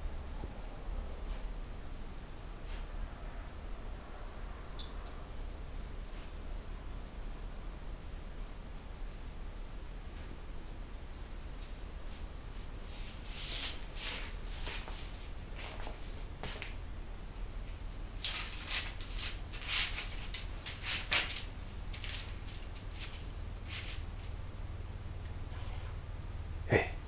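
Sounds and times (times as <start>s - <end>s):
rustling and scuffling: 11.5s - 24.6s.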